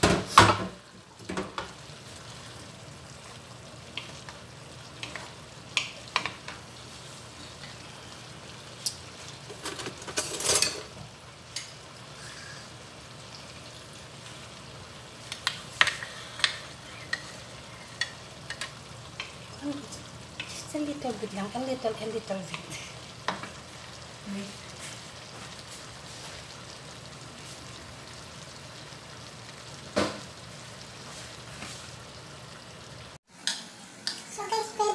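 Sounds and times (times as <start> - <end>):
vegetables sizzling in a frying pan: 0.0 - 34.9
utensils knocking and scraping pan: 9.5 - 11.0.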